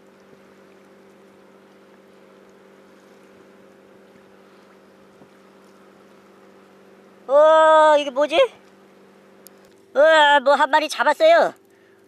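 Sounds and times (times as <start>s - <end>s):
faint low hum: 0.0s - 12.0s
small tick: 9.4s - 9.8s, 11.6s - 11.8s.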